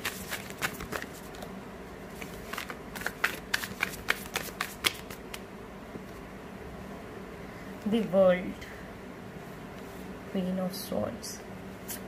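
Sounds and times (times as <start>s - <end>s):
cards being shuffled: 0.0s - 1.5s, 2.1s - 5.4s.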